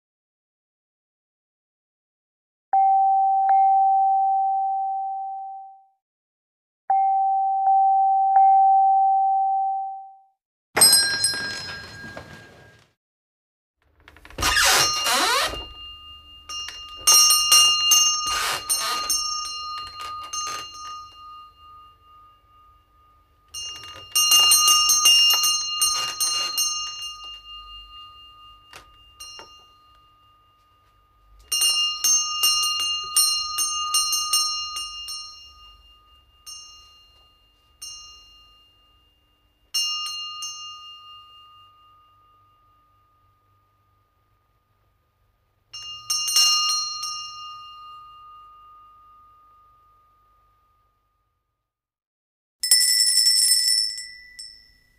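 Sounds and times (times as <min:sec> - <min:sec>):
shop doorbell jangling: 0:10.8 - 0:12.7, 0:14.4 - 0:41.8, 0:52.6 - 0:54.9.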